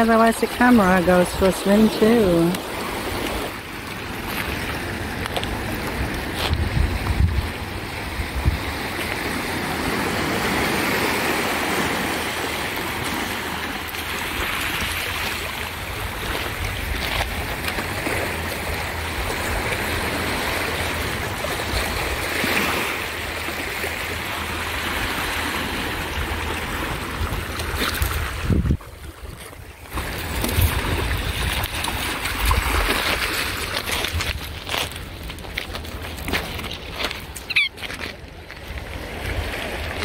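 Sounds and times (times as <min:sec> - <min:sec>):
water lapping over pebbles: 0:00.0 - 0:40.0
wind rumble on microphone: 0:04.2 - 0:10.9, 0:25.8 - 0:37.6.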